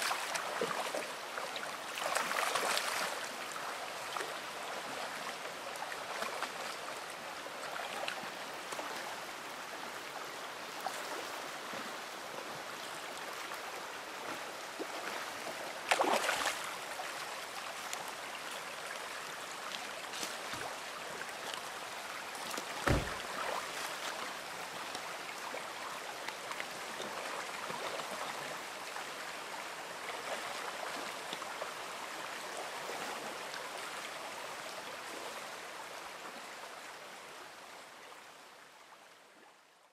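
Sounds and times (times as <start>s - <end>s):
creek water running over rocks: 0.0s - 39.9s
water splash: 15.9s - 16.7s.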